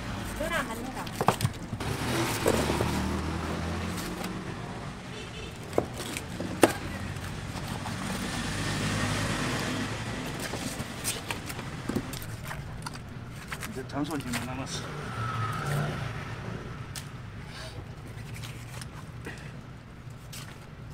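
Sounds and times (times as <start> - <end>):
vehicle engine passing: 1.8 - 5.2, 7.0 - 11.1, 14.6 - 17.3.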